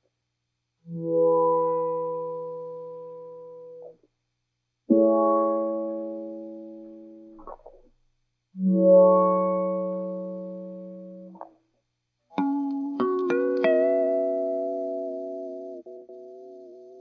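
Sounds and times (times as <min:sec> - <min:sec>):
electric guitar chords: 0:12.4 - 0:17.0
picked guitar notes: 0:12.4 - 0:17.0.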